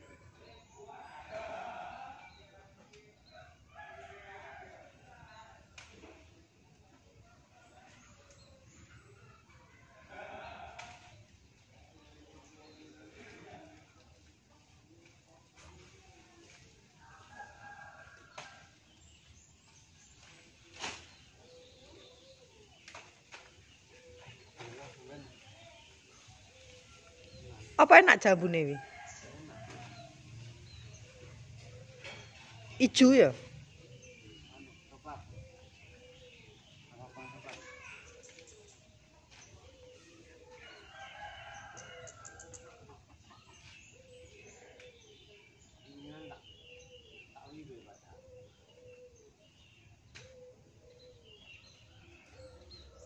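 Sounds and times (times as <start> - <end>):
leaves rustling: 13.3 - 28.2
rooster crowing: 28.6 - 30.2.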